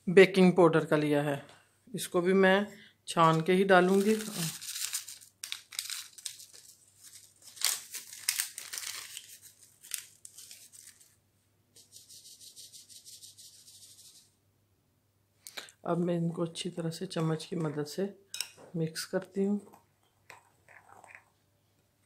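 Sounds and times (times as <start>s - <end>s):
packet crinkling: 3.2s - 11.2s.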